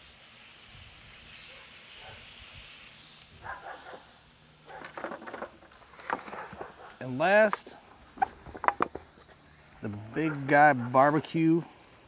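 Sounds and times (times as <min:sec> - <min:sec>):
meat sizzling on a grill: 0:00.0 - 0:12.0
dog barking: 0:01.5 - 0:02.3, 0:03.4 - 0:04.1, 0:04.7 - 0:04.9, 0:06.3 - 0:07.0.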